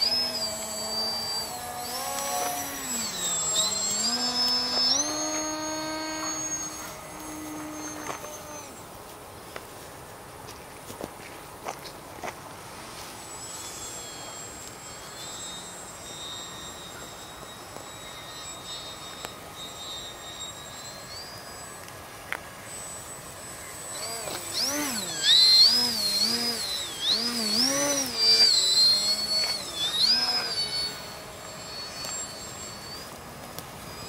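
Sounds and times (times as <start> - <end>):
model plane motor whining: 0.0 - 9.6, 12.7 - 34.0.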